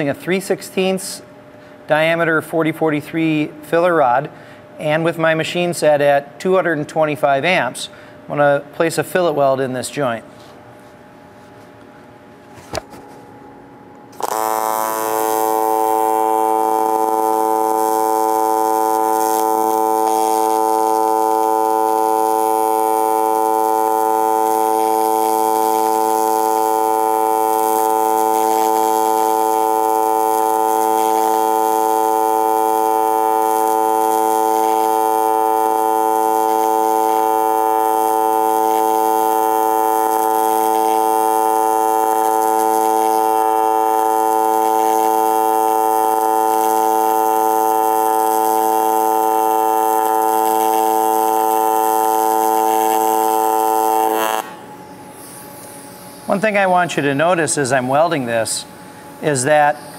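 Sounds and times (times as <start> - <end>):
welding arc buzzing: 12.6 - 59.9.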